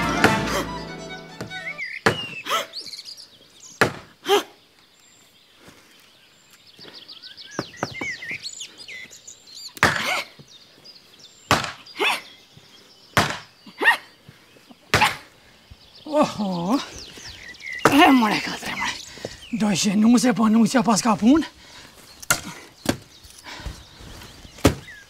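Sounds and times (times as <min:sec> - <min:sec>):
birds chirping: 0:00.0 - 0:25.0
heavy chopping thuds: 0:13.2 - 0:13.4, 0:24.6 - 0:25.0.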